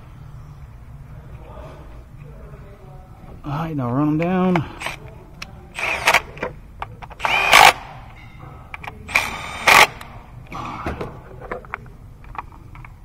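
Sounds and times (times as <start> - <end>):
power driver whining: 5.8 - 8.0, 9.1 - 10.2.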